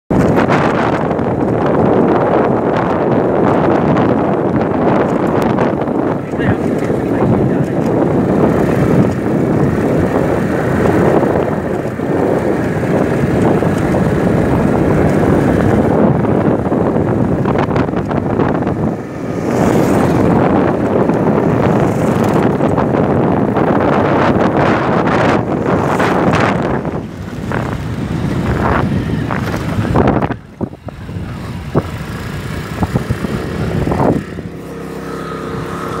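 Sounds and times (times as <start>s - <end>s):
motorcycle road and engine noise: 0.1s - 36.0s
wind rush on microphone: 0.1s - 36.0s.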